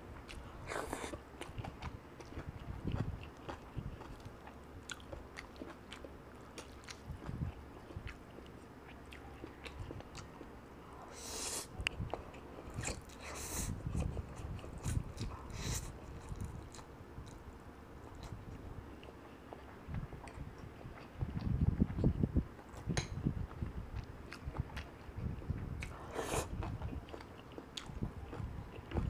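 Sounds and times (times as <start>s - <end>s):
chewing with wet mouth clicks: 0.2s - 10.5s, 11.6s - 17.4s, 18.1s - 29.0s
slurping noodles: 26.0s - 26.6s.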